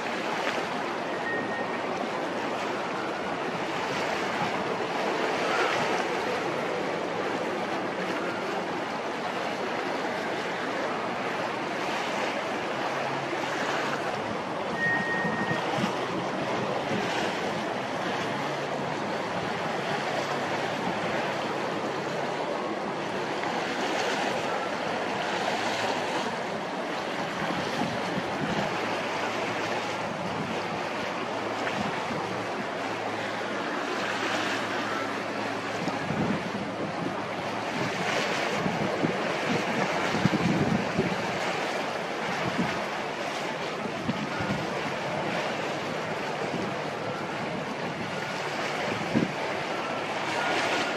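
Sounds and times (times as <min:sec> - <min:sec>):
low hum of ship engines: 0:00.0 - 0:50.9
wind rushing over microphone: 0:14.0 - 0:21.8, 0:25.6 - 0:34.7, 0:35.6 - 0:50.9.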